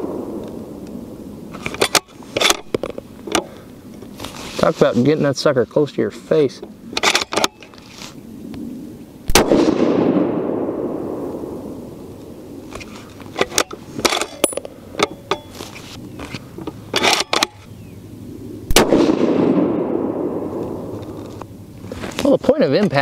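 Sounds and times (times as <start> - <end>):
rifle shot echoing: 0.0 - 1.1, 9.3 - 12.1, 18.7 - 21.0
rifle bolt metallic clicks: 7.0 - 7.6, 16.3 - 17.7.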